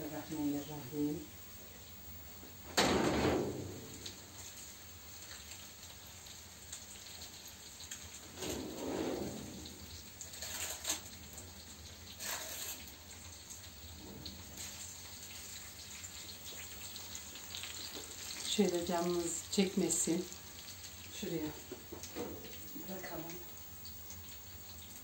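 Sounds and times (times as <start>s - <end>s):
faint steady hiss: 0.0s - 25.0s
scraping rustle: 8.2s - 11.1s, 12.2s - 12.9s.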